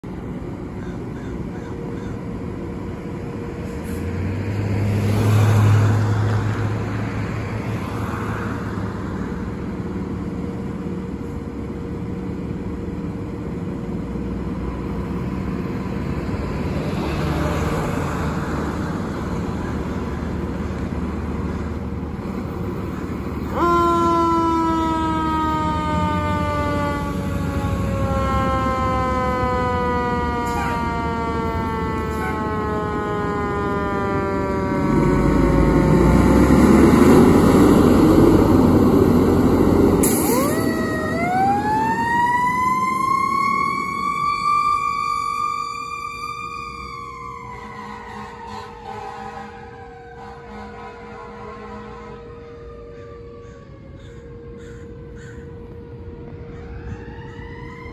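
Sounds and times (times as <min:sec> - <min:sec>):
road traffic passing: 0:00.0 - 0:57.9
fire engine siren: 0:03.2 - 0:57.9.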